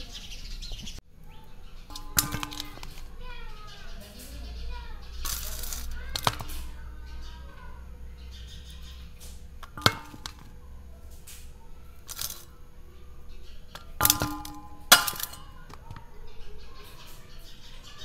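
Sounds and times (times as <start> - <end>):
metal bowl clinking: 1.9 - 3.2, 9.6 - 10.6, 13.8 - 16.0.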